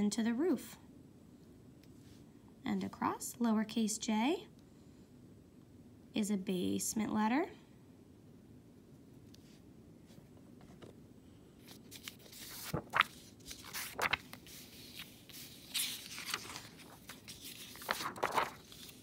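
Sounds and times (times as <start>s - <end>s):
paper sheets shuffling: 11.6s - 19.0s.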